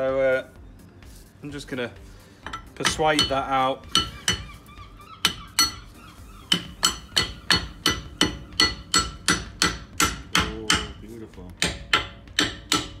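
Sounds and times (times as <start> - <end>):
hammer striking metal punch: 2.5 - 4.5, 6.5 - 13.0.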